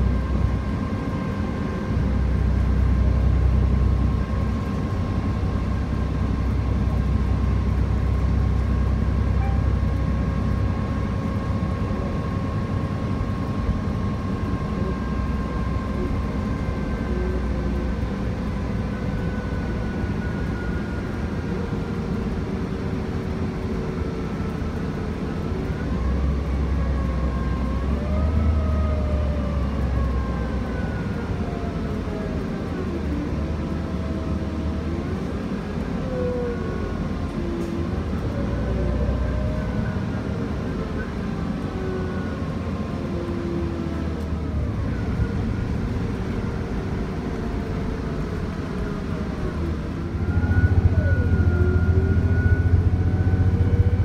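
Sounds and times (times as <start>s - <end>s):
bus engine rumble: 0.0s - 54.0s
faint whine: 44.6s - 54.0s.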